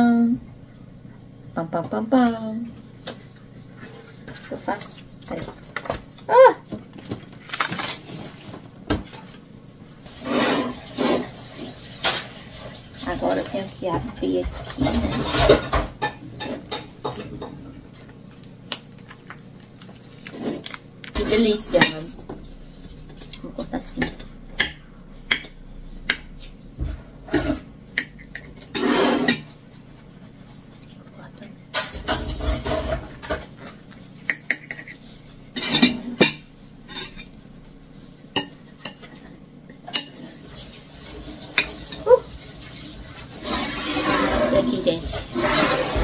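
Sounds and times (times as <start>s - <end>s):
rustling scrapes: 7.4s - 9.4s, 10.0s - 15.8s, 19.7s - 22.8s, 28.6s - 29.4s, 32.1s - 33.8s, 40.2s - 46.0s
knife scraping plate: 10.1s - 11.7s, 27.3s - 29.6s, 43.4s - 46.0s.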